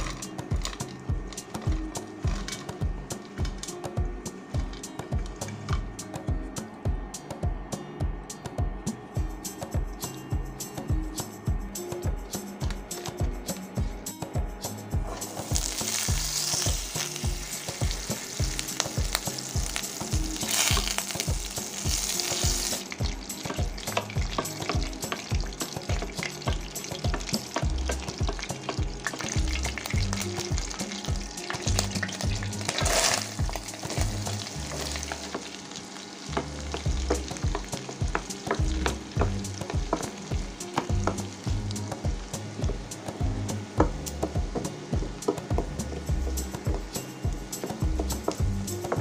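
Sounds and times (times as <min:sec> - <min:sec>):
onions frying: 0:00.0 - 0:06.0, 0:15.0 - 0:49.0
butter sizzling in frying pan: 0:15.2 - 0:45.7.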